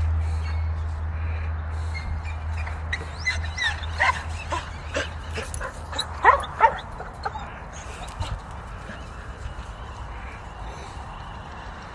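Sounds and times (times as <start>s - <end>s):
animal yips and squeals: 2.2s - 8.1s.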